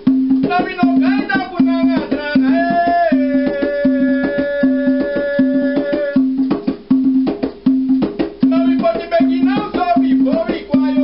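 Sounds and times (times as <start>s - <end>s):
hand drum rhythm: 0.0s - 11.0s
man singing: 0.4s - 6.3s, 8.4s - 11.0s.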